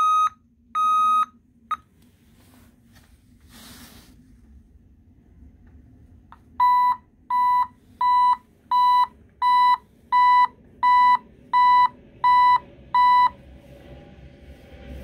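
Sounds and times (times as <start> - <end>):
reversing alarm beeping: 0.0 - 1.8, 6.6 - 13.4.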